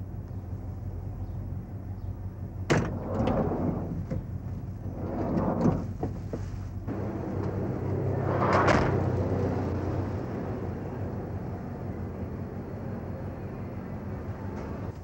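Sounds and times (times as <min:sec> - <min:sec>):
steady low hum: 0:00.0 - 0:15.0
van door clunk: 0:02.6 - 0:07.7, 0:08.4 - 0:09.2
sliding door rolling open: 0:02.7 - 0:13.2, 0:13.9 - 0:15.0
rustling: 0:05.2 - 0:07.0.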